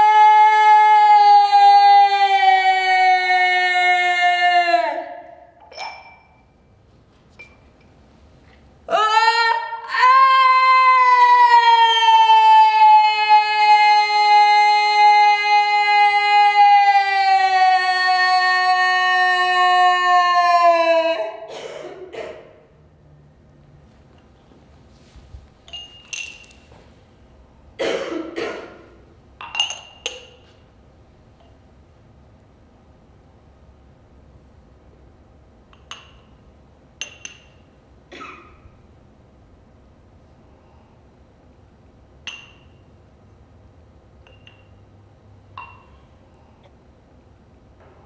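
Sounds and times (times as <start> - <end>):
glasses clinking: 5.6 - 6.7, 7.3 - 8.0, 25.6 - 26.8, 29.4 - 30.6, 35.7 - 36.4, 37.0 - 37.7, 42.2 - 42.9, 44.2 - 46.1
light taps of glass: 44.2 - 44.8.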